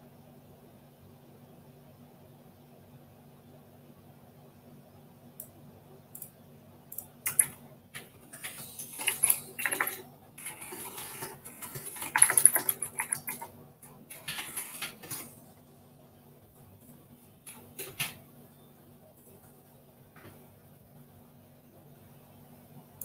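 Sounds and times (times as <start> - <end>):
small hard objects clattering: 8.3 - 13.5, 14.1 - 15.3.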